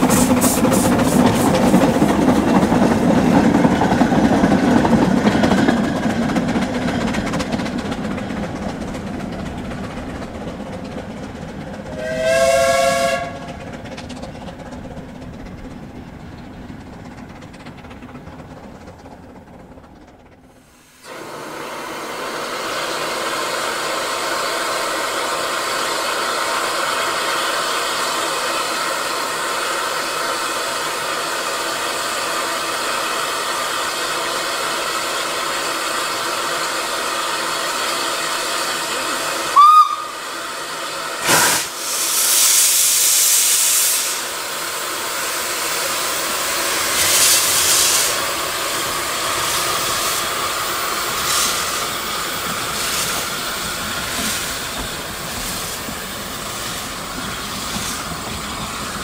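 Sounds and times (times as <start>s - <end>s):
loud bursts of steam: 0.0s - 2.0s, 20.6s - 59.0s
steam hissing: 0.0s - 6.9s, 20.6s - 59.0s
steam whistle blast: 12.0s - 13.5s, 39.5s - 40.2s, 41.2s - 41.8s.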